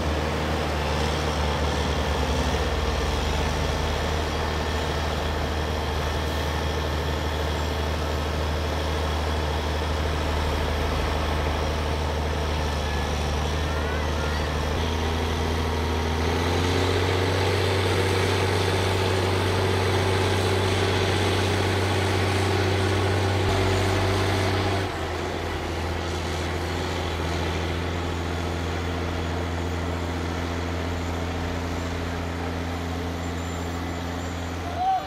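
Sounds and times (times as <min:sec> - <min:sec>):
truck diesel engine under load: 0:00.0 - 0:35.0.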